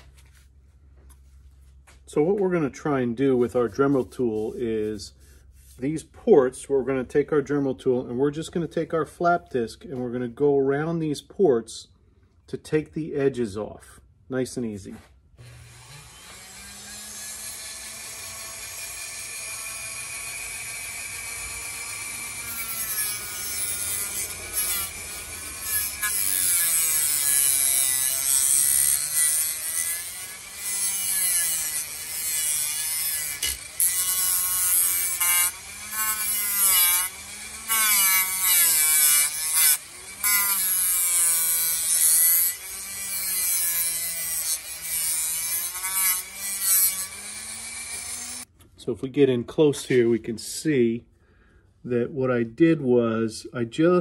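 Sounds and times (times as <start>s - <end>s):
rotary tool motor whine: 15.4s - 48.5s.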